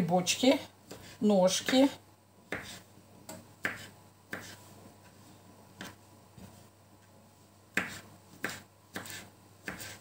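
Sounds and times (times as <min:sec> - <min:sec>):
knife chopping on wooden board: 0:02.5 - 0:02.8, 0:03.6 - 0:04.6, 0:07.7 - 0:10.0.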